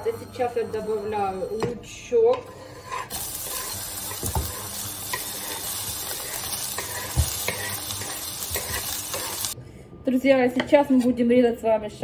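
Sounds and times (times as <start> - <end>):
onion sizzling in frying pan: 2.8 - 9.6.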